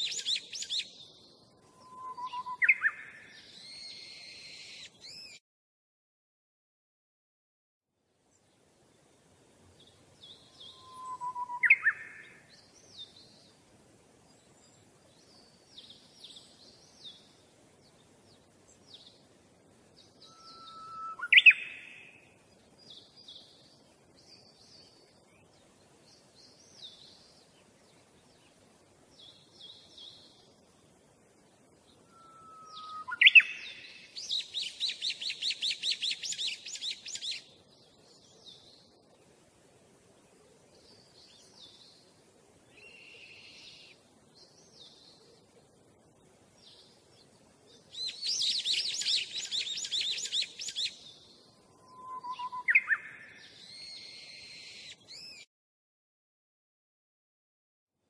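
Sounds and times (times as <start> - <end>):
whistled bird calls: 0.0 - 0.9, 1.7 - 5.4, 10.3 - 12.4, 20.2 - 22.2, 32.0 - 37.5, 47.9 - 51.0, 51.6 - 55.5
songbirds chirping: 0.0 - 5.4, 8.0 - 55.5.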